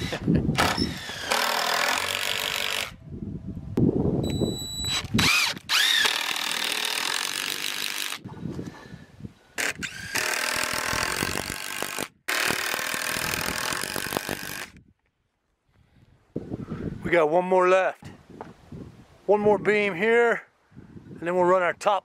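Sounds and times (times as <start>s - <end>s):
cordless driver driving screws: 0.0s - 2.9s, 4.9s - 8.2s, 9.6s - 14.8s.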